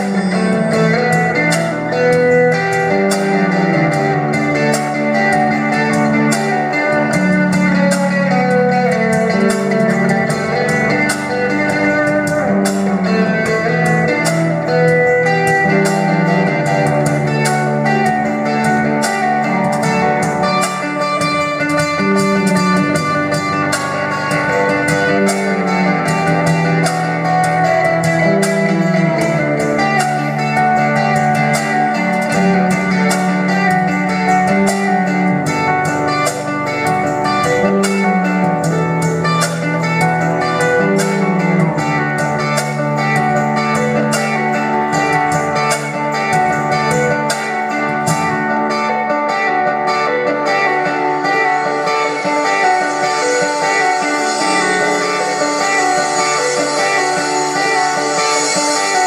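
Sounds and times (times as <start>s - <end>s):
acoustic guitar: 0.0s - 59.0s
drums: 0.0s - 59.0s
keyboard: 0.0s - 59.0s.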